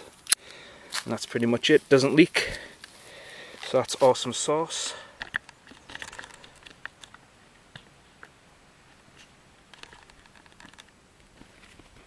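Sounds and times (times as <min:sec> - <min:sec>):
handling clicks and rustles: 0:03.6 - 0:08.4, 0:09.1 - 0:12.0.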